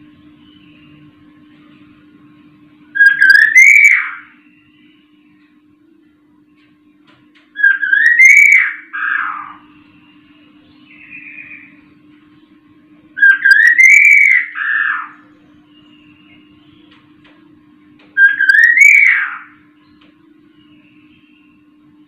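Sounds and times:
faint steady hum: 0.0 - 22.0
bird whistling phrases: 3.0 - 5.0, 7.6 - 11.8, 13.2 - 16.9, 18.2 - 19.6.

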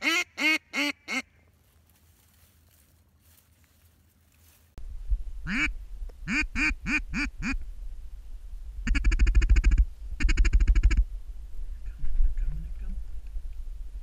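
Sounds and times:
duck quacking: 0.0 - 1.3, 5.5 - 5.7, 6.3 - 7.6, 8.9 - 11.0
low rumble: 4.8 - 14.0.

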